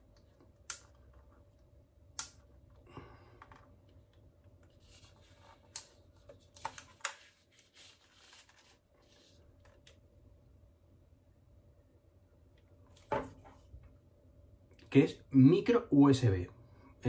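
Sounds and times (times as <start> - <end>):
sharp plastic clicks: 2.1 - 2.5.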